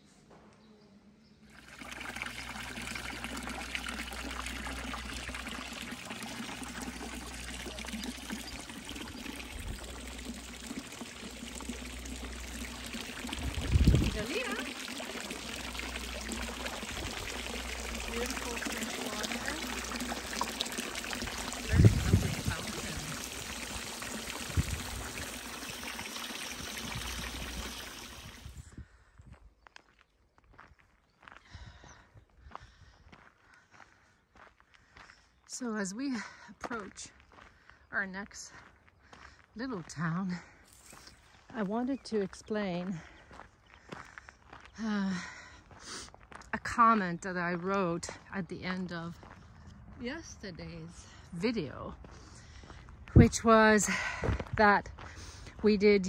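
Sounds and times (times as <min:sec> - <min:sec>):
water pouring into stone basin: 0:01.5 - 0:28.7.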